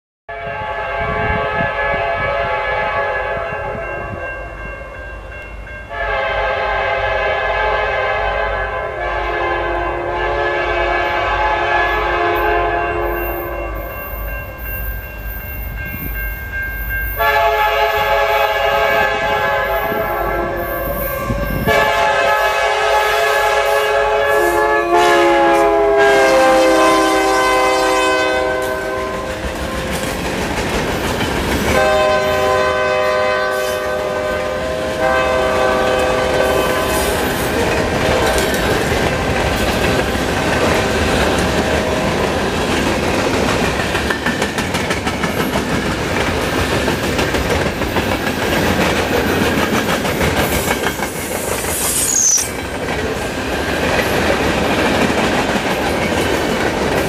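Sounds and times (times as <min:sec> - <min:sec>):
locomotive air horn blasts: 0:00.3 - 0:03.8, 0:05.9 - 0:13.8, 0:17.2 - 0:29.9, 0:31.7 - 0:37.5.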